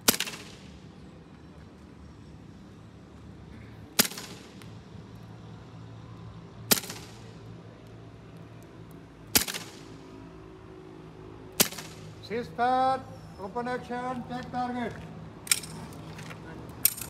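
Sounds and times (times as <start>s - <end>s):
airsoft pistol shots: 0.0s - 0.7s, 4.0s - 4.6s, 6.7s - 7.2s, 9.3s - 9.9s, 11.6s - 12.1s.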